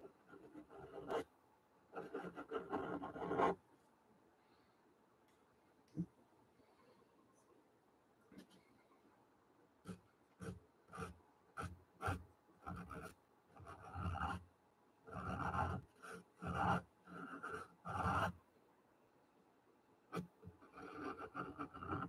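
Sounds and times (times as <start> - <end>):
pencil scratching on paper: 0.0 - 1.2, 2.0 - 3.6, 9.9 - 14.4, 15.1 - 18.4, 20.1 - 22.0.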